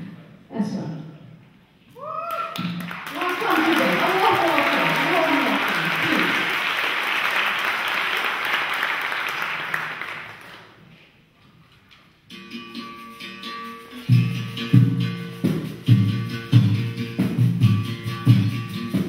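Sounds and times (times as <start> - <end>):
audience applause: 2.3 - 10.8
plucked string instrument playing: 12.3 - 19.0.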